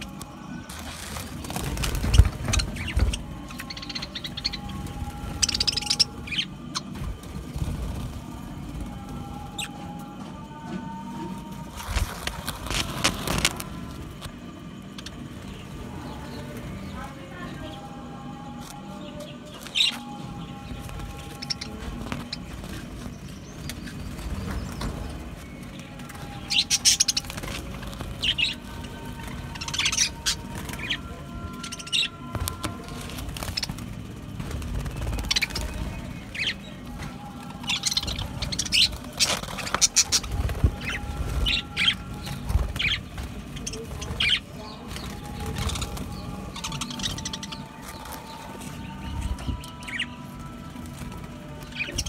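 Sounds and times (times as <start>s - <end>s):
budgerigars chirping and chattering: 0.0s - 7.7s, 18.7s - 50.2s.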